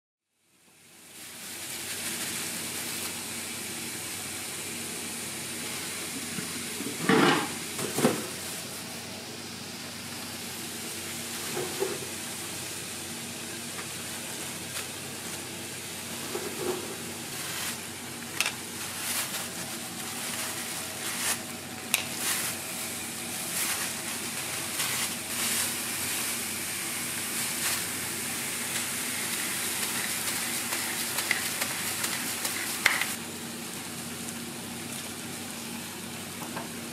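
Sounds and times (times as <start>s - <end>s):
food sizzling on a griddle: 0.5s - 36.9s
clicks and taps on griddle: 29.8s - 33.2s.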